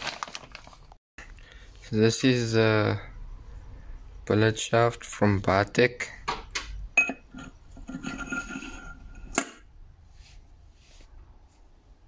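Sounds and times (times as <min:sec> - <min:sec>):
metal scraping with ringing: 0:07.0 - 0:09.6.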